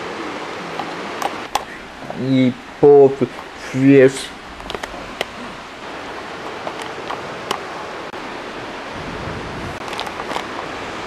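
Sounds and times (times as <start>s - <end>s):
heavy rain rushing: 0.0s - 11.0s
low thunder rumble: 8.6s - 9.9s.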